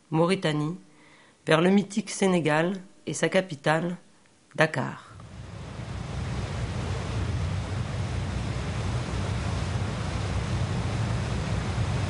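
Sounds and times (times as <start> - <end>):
ship rumble: 5.2 - 12.0
sea water rushing in wake: 5.4 - 12.0.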